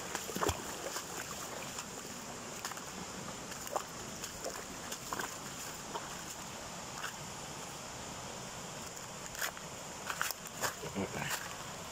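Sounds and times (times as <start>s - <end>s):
creek flowing: 0.0s - 11.9s
small waterfall rushing: 0.0s - 11.9s.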